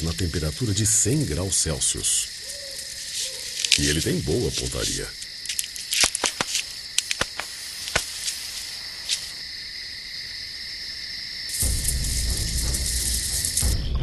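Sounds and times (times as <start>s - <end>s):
night insects chirring: 0.0s - 14.0s
sharp clicks and pops: 3.1s - 8.4s.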